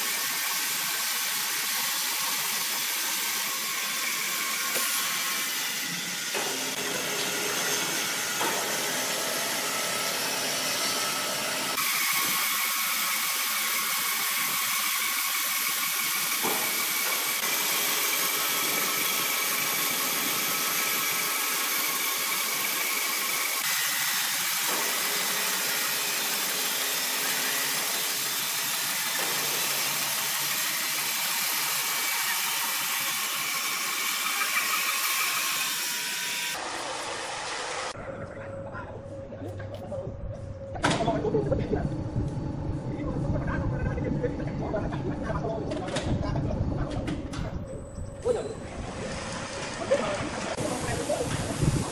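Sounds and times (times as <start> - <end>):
band saw cutting log: 0.0 - 38.0.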